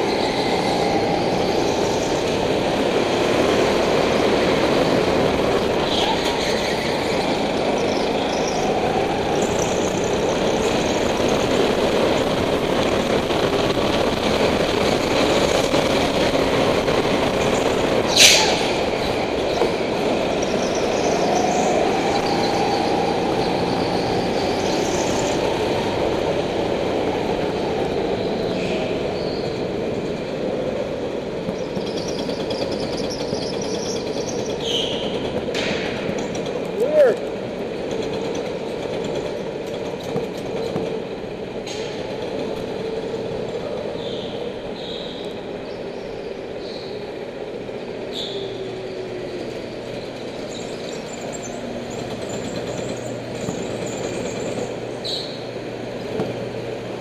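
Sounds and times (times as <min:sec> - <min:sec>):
go-kart engine drone: 0:00.0 - 0:37.6
high squeal: 0:05.8 - 0:11.4, 0:20.2 - 0:25.4, 0:48.1 - 0:55.5.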